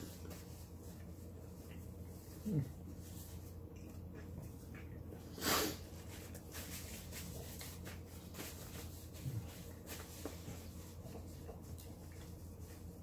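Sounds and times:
low steady hum: 0.0 - 13.0
paper napkin rustling: 5.6 - 13.0.

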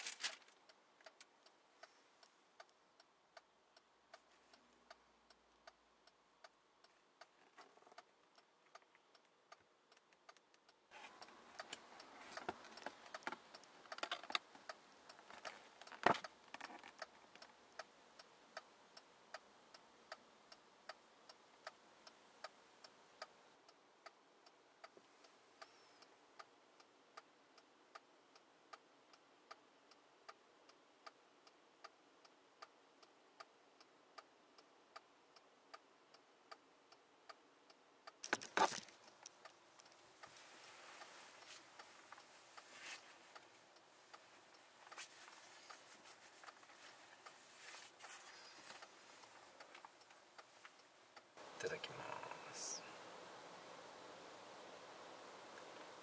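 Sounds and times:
soft rustling: 0.0 - 1.3, 10.9 - 17.6, 38.2 - 50.9
faint mechanical ticking: 0.0 - 56.0.

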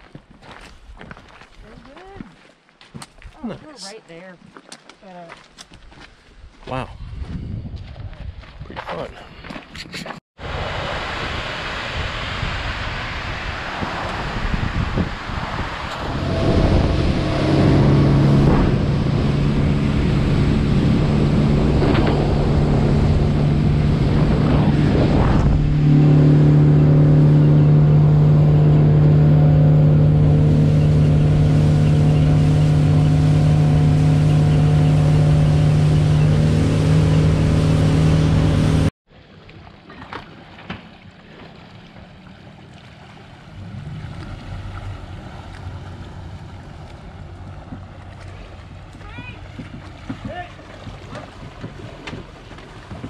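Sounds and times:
water lapping: 9.3 - 53.0
wind rushing: 10.4 - 37.9
outboard motor running: 15.7 - 38.9, 39.7 - 53.0.

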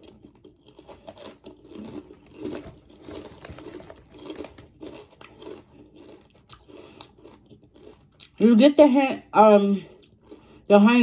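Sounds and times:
potato chips being chewed: 0.0 - 8.5.

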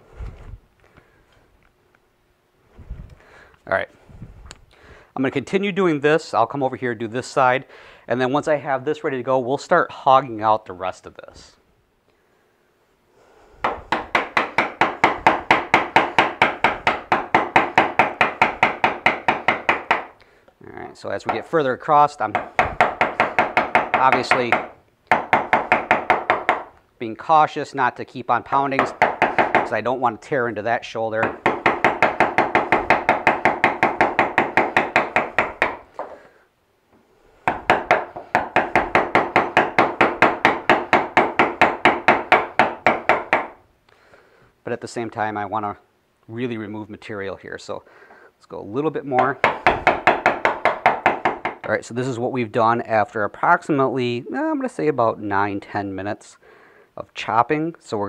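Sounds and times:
wooden mallet striking chisel: 13.6 - 20.2, 21.3 - 21.6, 22.3 - 26.8, 28.6 - 29.9, 31.2 - 36.2, 37.4 - 43.6, 49.2 - 51.8.

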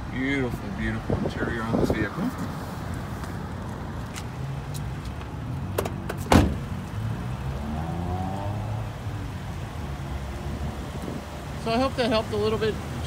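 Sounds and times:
car door thump: 5.7 - 6.8.

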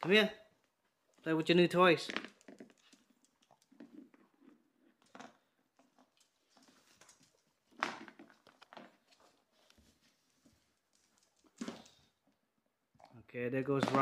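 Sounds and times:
puppy claws clicking on tile floor: 2.0 - 12.1.

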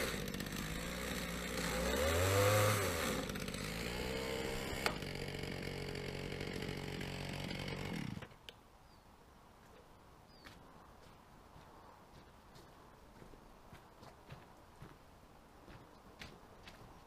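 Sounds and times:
chainsaw engine revving: 0.0 - 8.4.

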